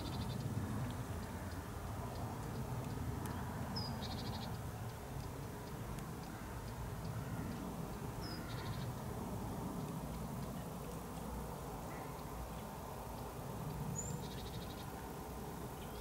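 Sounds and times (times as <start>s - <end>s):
small bird calling: 0.0s - 0.5s, 1.2s - 4.6s, 5.2s - 9.0s.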